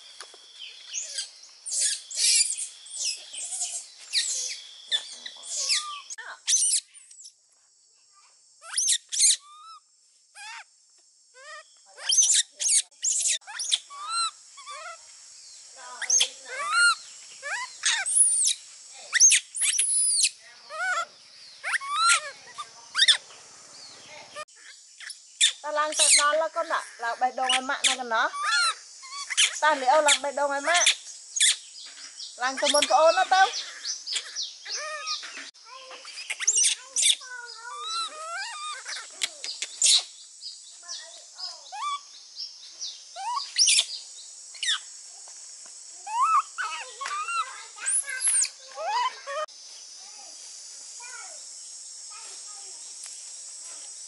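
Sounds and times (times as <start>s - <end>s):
high chirps: 0.6s - 7.4s, 11.4s - 15.0s, 15.8s - 26.4s, 27.4s - 45.0s, 46.0s - 49.8s
baby monkey crying: 5.5s - 6.9s, 8.6s - 9.8s, 10.4s - 10.7s, 11.4s - 15.0s, 16.0s - 23.2s, 25.4s - 31.6s, 32.4s - 35.3s, 36.0s - 40.1s, 41.7s - 42.1s, 43.2s - 43.9s, 46.0s - 49.5s.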